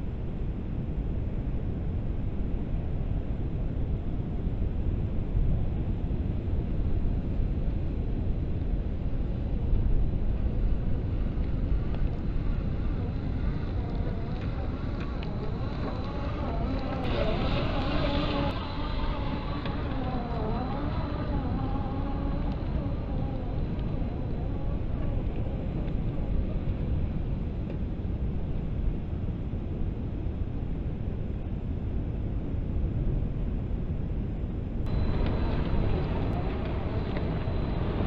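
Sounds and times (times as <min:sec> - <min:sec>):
wind rumbling on microphone: 0:00.0 - 0:38.0
toy truck electric motor whine: 0:10.8 - 0:26.6, 0:34.9 - 0:38.0.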